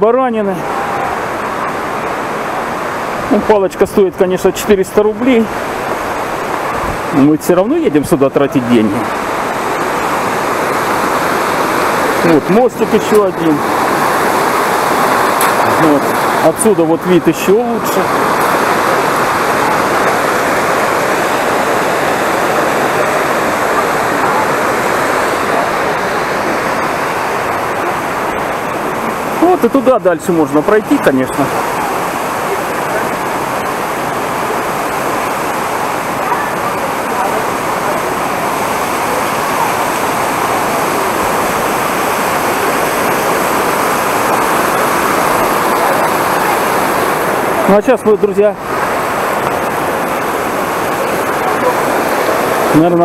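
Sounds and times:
mountain stream rushing: 0.0 - 53.0.

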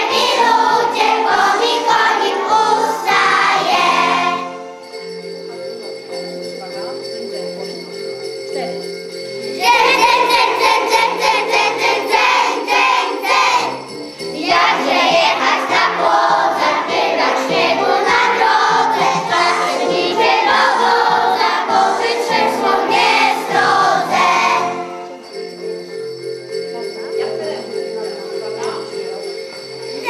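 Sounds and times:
children's choir singing: 0.0 - 4.7, 9.6 - 25.2
instrumental accompaniment: 0.0 - 30.0
jingle bells shaken: 0.0 - 30.0.

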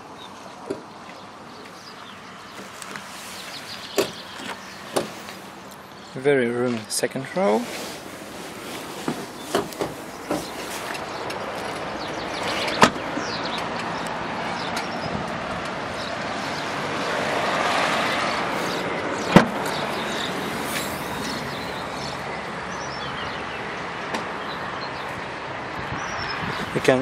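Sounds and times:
traffic noise: 0.0 - 27.0
car door shutting: 3.9 - 5.2, 9.0 - 10.6, 19.3 - 19.9.

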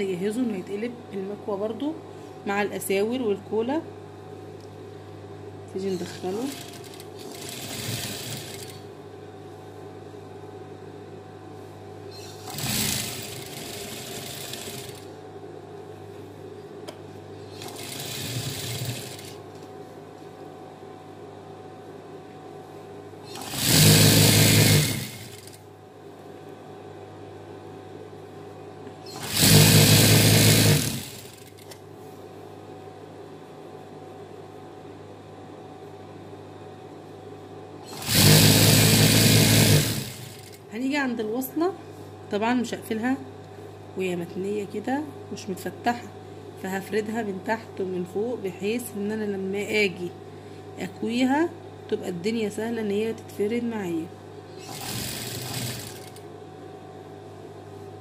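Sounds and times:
steady low hum: 0.0 - 58.0
sewing machine stitching: 5.9 - 8.8, 12.2 - 15.1, 17.5 - 19.4, 23.3 - 25.6, 29.1 - 31.8, 37.8 - 40.6, 54.6 - 56.2.

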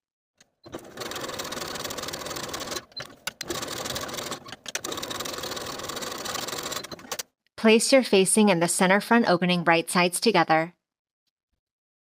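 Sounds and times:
sewing machine stitching: 0.4 - 7.3.

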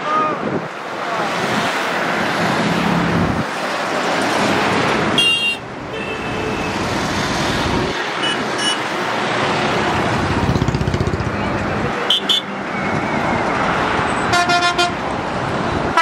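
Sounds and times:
road traffic and engines: 0.0 - 16.0
horn tooting: 5.2 - 6.8, 12.1 - 12.6, 14.3 - 15.0.

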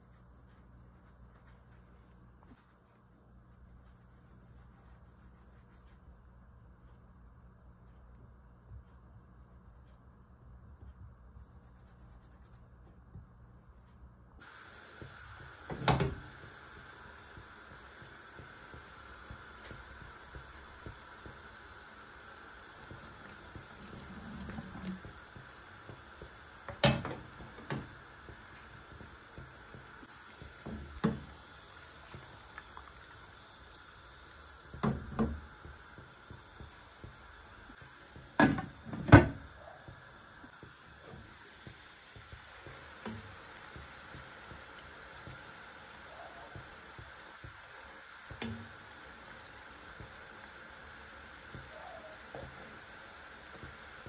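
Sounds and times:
syrup bubbling hiss: 14.4 - 54.0.

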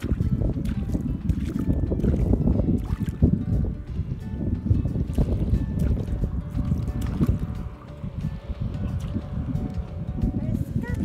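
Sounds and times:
faint music: 0.0 - 11.0
wind buffeting microphone: 0.0 - 11.0.

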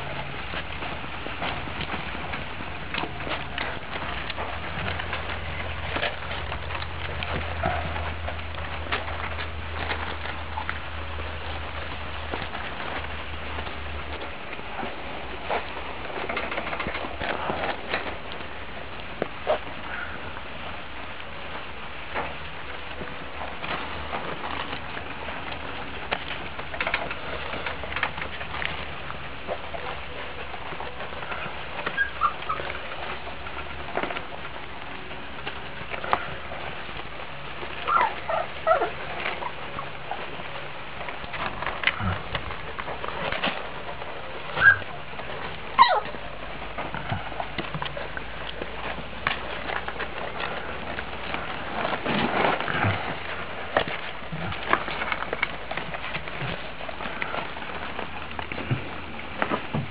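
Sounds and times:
puppies tapping and scratching: 0.0 - 59.9
puppy squeaks: 31.9 - 32.7, 37.9 - 39.5, 44.6 - 44.9, 45.8 - 46.1.

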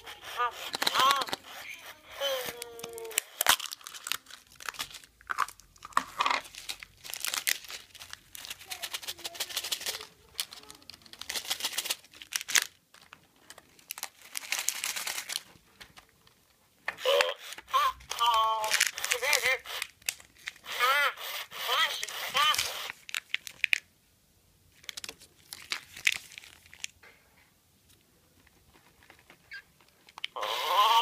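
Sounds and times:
toy electronic voice: 0.0 - 3.4, 17.0 - 19.8, 20.6 - 22.9, 30.3 - 31.0
plastic wrapping crinkling and tearing: 0.0 - 16.1, 17.1 - 23.9, 24.7 - 27.0.

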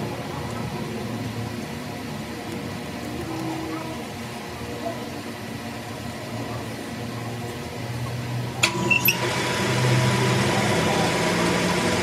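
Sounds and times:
metal lathe running: 8.5 - 12.0.

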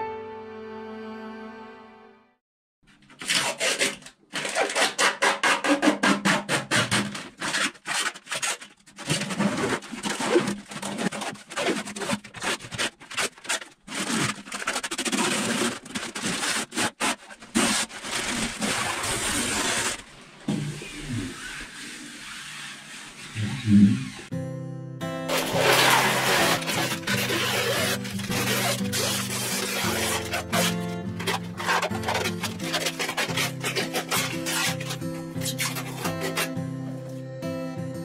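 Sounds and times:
fabric ripping off resin: 6.9 - 20.2, 25.3 - 37.0.

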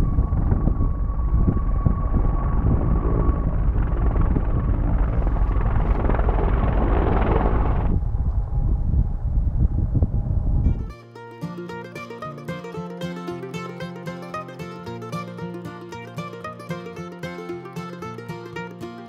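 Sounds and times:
quadcopter drone whirring: 0.0 - 10.6
wind rumble on microphone: 0.0 - 10.9.

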